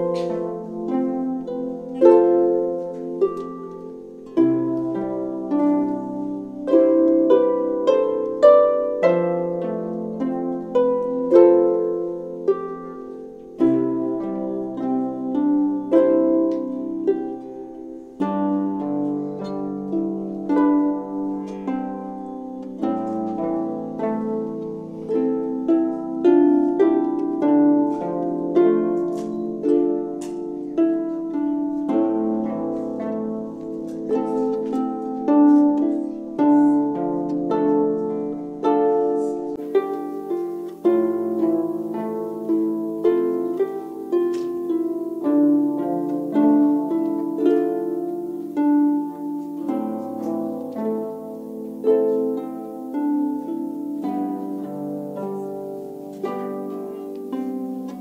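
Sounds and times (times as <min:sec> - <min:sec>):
harps playing: 0:00.0 - 0:58.0.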